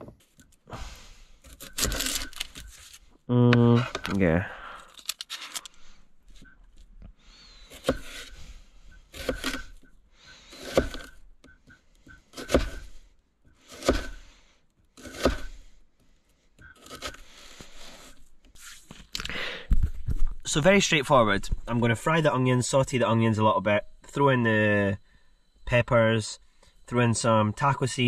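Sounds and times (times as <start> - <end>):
knife slicing onion: 1.4 - 2.6, 7.7 - 8.4, 9.1 - 9.8, 10.5 - 11.2, 12.3 - 13.0, 13.6 - 14.3, 15.0 - 15.6, 16.8 - 18.2
onion skin tearing: 4.8 - 5.7.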